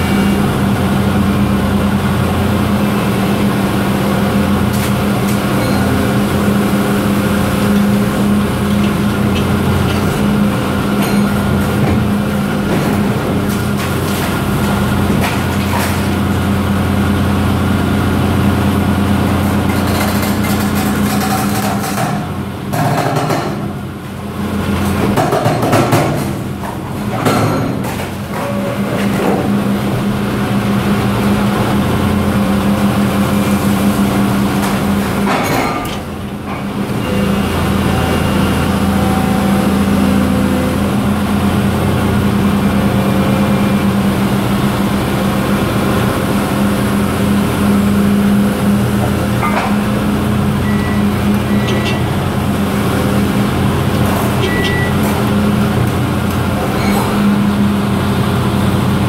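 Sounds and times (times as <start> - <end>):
excavator engine and hydraulics: 0.0 - 59.0.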